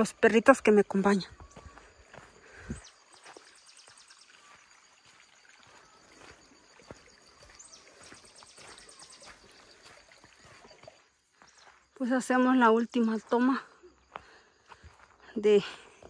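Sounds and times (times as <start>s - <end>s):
bird chirp: 0.0s - 12.0s
soft footsteps: 0.6s - 11.9s
insect trill: 2.9s - 15.6s.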